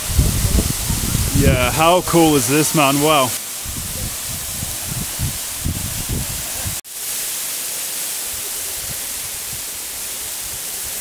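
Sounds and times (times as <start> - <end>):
wind buffeting microphone: 0.0 - 2.1, 3.6 - 6.8
waterfall splashing into pool: 0.0 - 11.0.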